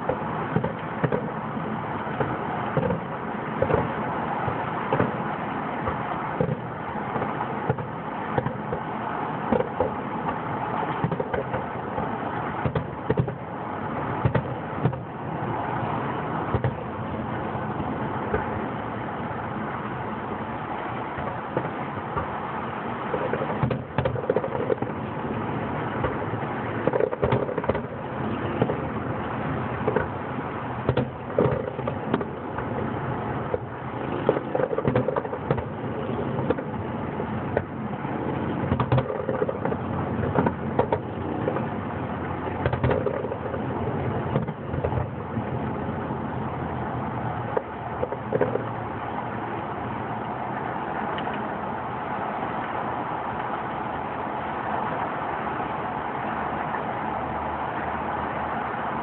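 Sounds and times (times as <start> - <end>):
distant fireworks pops and bangs: 0.0 - 17.4, 18.0 - 18.8, 20.4 - 46.0, 47.4 - 49.0
steady background rumble: 0.0 - 59.0.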